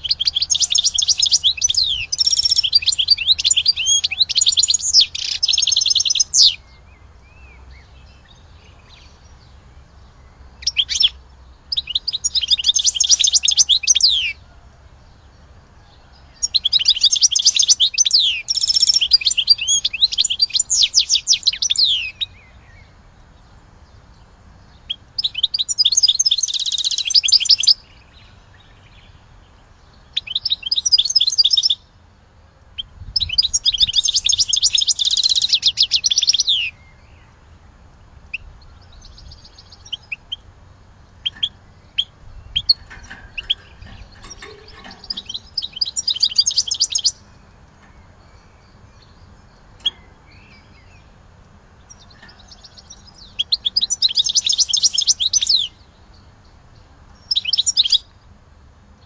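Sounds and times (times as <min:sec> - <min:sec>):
goldfinch twittering: 0:00.0 - 0:06.6, 0:41.2 - 0:47.3, 0:51.9 - 0:55.7
single bird chirps: 0:00.0 - 0:06.6, 0:41.2 - 0:49.2.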